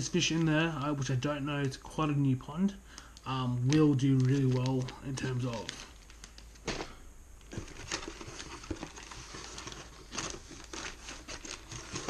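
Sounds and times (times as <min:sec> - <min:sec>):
plastic packets crinkling: 0:02.9 - 0:12.0.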